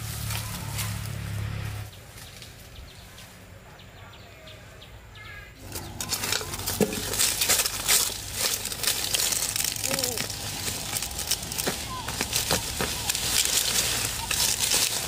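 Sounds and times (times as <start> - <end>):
rustling and crackling: 5.6 - 15.0.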